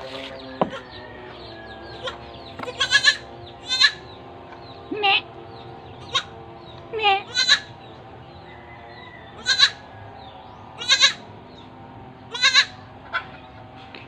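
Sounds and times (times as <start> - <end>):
goat kid bleating: 2.0 - 4.1, 6.0 - 6.3, 7.0 - 7.8, 9.4 - 9.9, 10.8 - 11.3, 12.3 - 13.4.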